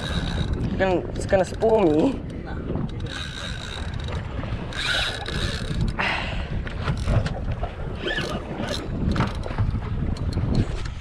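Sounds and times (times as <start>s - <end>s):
fishing reel clicking: 0.0s - 0.6s, 2.8s - 6.0s
water rushing along boat: 0.0s - 11.0s
wind buffeting microphone: 0.0s - 11.0s.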